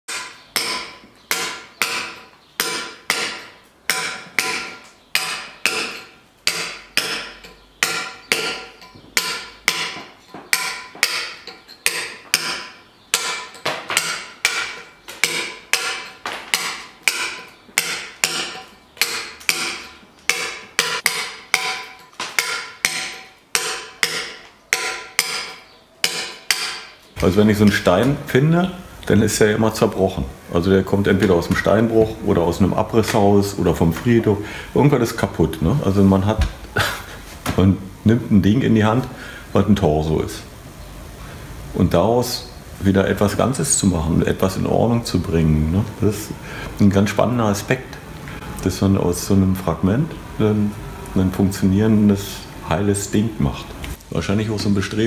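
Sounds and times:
hammer striking chisel on stone: 0.1 - 27.0.

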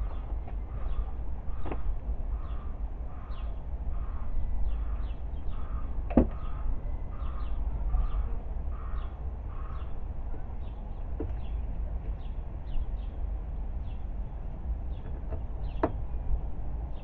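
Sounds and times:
bird calling: 0.0 - 10.0.

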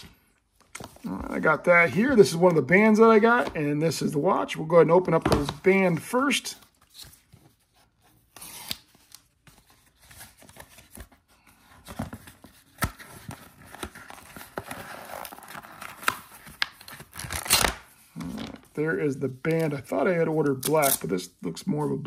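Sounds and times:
paper ripping: 17.0 - 18.4.

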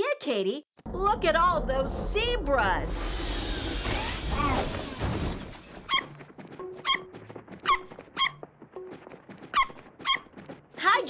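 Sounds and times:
squeaky cartoon yelping calls: 5.9 - 6.1, 6.8 - 8.4, 9.6 - 10.3.

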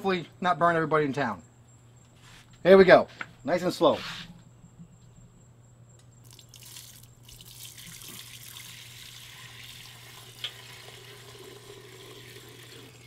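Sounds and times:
oil pouring through strainer: 6.2 - 13.0.

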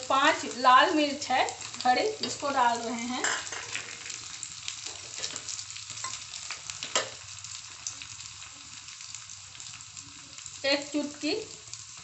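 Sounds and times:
spices sizzling in hot oil: 0.0 - 12.0.

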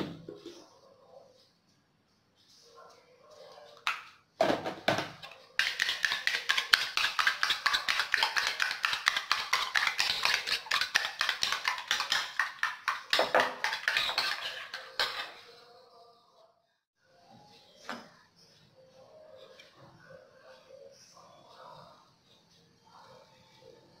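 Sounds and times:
spoon beating eggs in bowl: 5.2 - 15.6.

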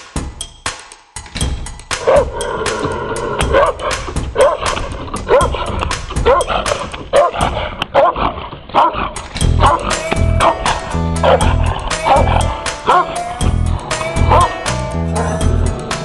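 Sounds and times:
background music with steady beat: 0.0 - 8.1, 8.9 - 16.0
dog barking: 2.0 - 2.3, 3.5 - 13.3, 14.1 - 14.6, 15.2 - 15.4.

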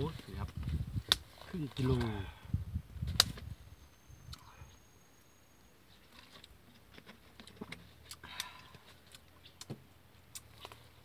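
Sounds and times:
eating with hands: 7.4 - 11.0
chewing: 10.3 - 10.9.

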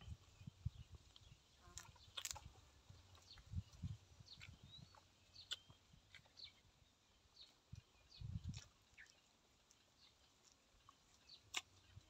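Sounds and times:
faint bird chirps: 0.0 - 9.3
soft chewing thuds: 0.1 - 6.7, 7.4 - 12.0.

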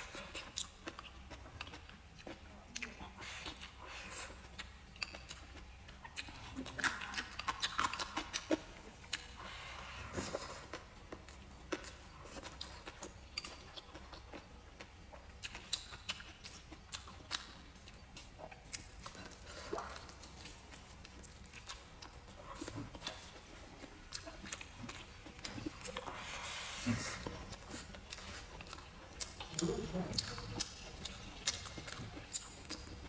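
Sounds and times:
person chewing: 0.0 - 33.0.

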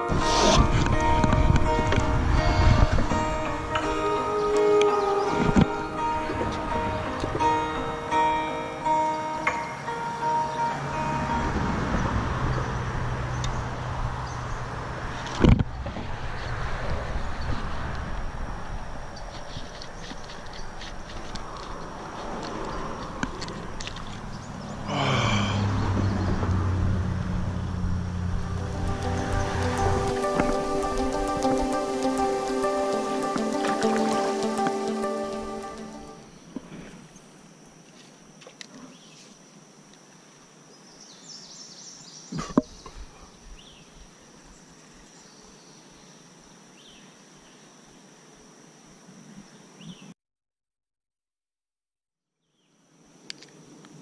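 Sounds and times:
music with low bass: 0.0 - 9.7, 28.2 - 36.2
high-pitched insect drone: 0.0 - 12.5
steady outdoor hiss: 0.0 - 50.2, 52.4 - 54.0.

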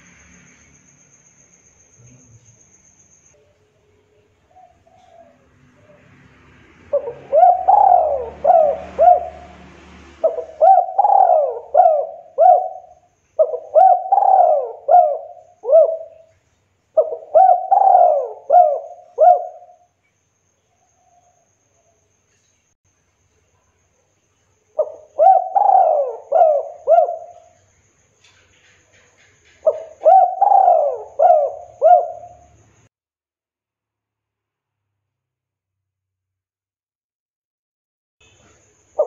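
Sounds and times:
dove cooing: 6.9 - 9.6, 10.2 - 16.3, 17.0 - 19.8, 24.8 - 27.6, 29.6 - 32.6.

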